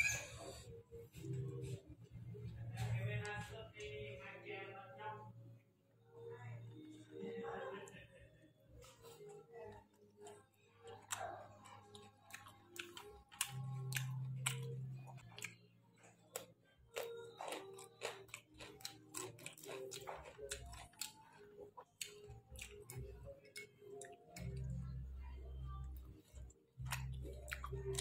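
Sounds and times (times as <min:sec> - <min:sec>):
man chewing with wet smacking: 0:08.8 - 0:28.0.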